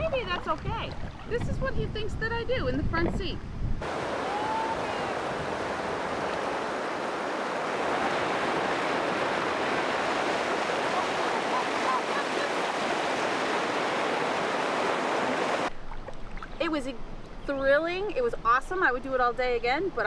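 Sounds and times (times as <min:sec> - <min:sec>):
river rapids rushing: 0:03.8 - 0:15.7.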